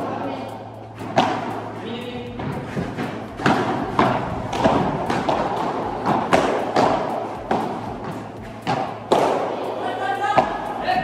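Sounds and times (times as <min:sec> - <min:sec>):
rackets hitting ball: 0:00.0 - 0:11.0
ball bouncing on court: 0:03.4 - 0:09.5.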